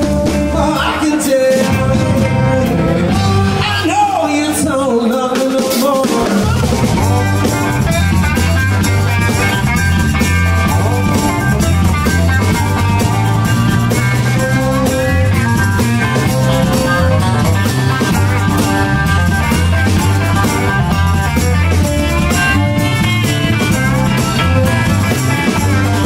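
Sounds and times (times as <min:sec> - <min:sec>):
bass line: 0:00.0 - 0:26.0
drum kit: 0:00.0 - 0:26.0
electric guitars: 0:00.0 - 0:26.0
harmonica playing: 0:06.5 - 0:26.0.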